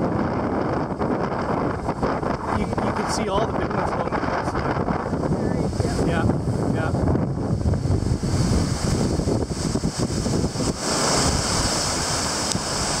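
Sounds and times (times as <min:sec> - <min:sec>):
surf breaking on rocks: 0:00.0 - 0:13.0
wind buffeting microphone: 0:00.0 - 0:13.0.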